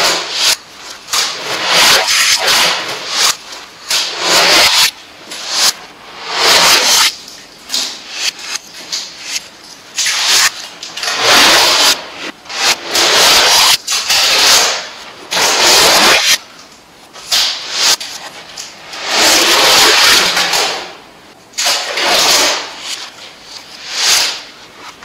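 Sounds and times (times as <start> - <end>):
adhesive tape pulled off roll: 0.0 - 5.8.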